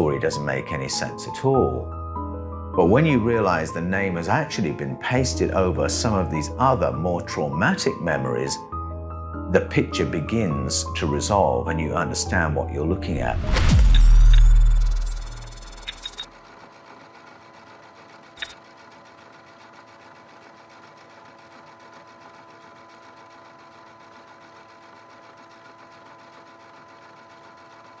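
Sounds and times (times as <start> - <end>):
electronic logo sting boom: 13.2 - 16.0
faint electronic hum: 13.2 - 16.6.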